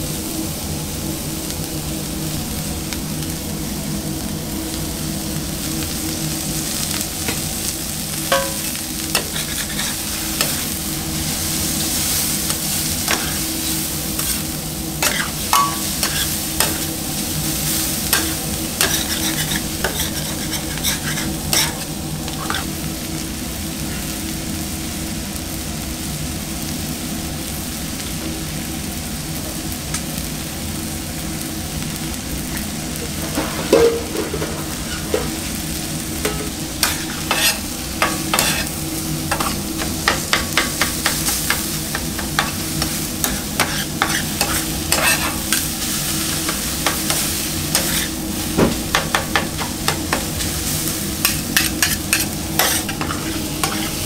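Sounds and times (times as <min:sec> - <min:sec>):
onions sizzling on griddle: 0:00.0 - 0:54.0
metal spatula scraping griddle: 0:08.3 - 0:22.8, 0:33.2 - 0:35.5, 0:36.3 - 0:48.2, 0:51.2 - 0:54.0.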